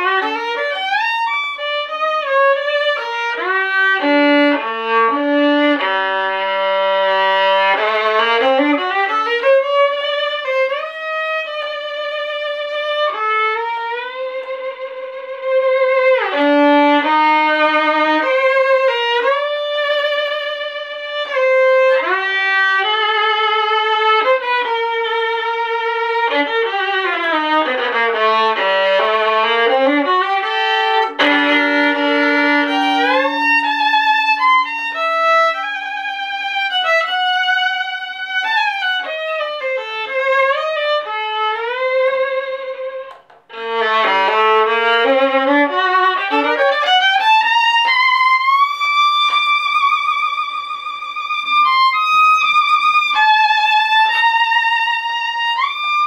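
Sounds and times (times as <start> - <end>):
solo violin melody: 0.0 - 56.0.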